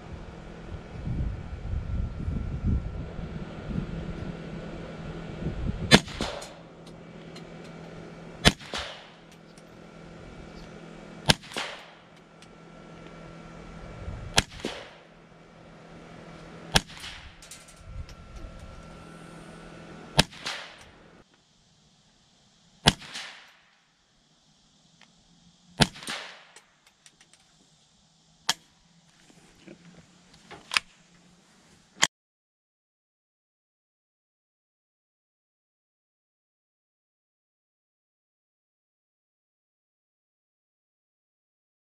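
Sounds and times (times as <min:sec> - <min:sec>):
rifle shots: 0:05.9 - 0:06.7, 0:08.4 - 0:09.4, 0:11.2 - 0:12.2, 0:14.3 - 0:15.1, 0:16.7 - 0:17.7, 0:20.1 - 0:21.0, 0:22.8 - 0:23.7, 0:25.8 - 0:26.8.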